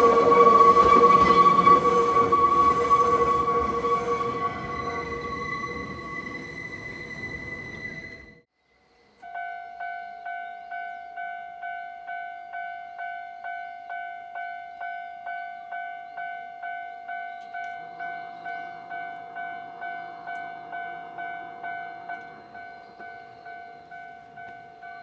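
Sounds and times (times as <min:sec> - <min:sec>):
level crossing warning bell: 0:09.2 - 0:25.0.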